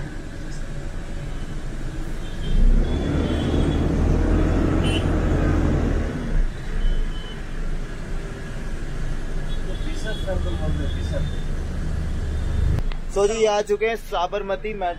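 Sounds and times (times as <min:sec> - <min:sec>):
bus diesel engine rumbling: 0:00.0 - 0:14.9
road traffic: 0:00.0 - 0:14.9.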